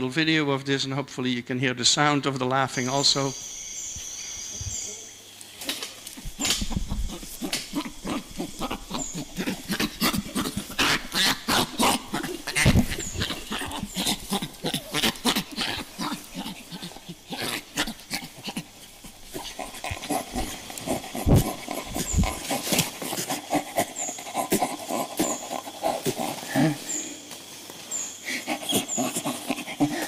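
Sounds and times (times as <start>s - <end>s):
young chimpanzees laughing: 6.1s - 27.2s, 28.2s - 30.0s.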